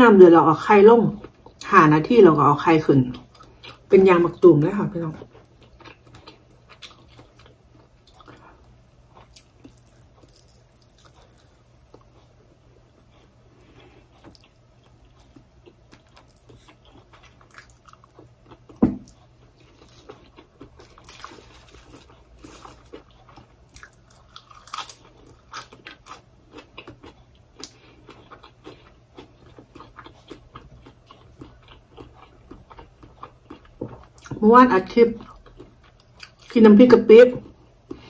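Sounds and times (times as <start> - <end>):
chewing and crunching food: 2.6 - 36.8, 37.4 - 38.0
dull thump: 18.8 - 19.0.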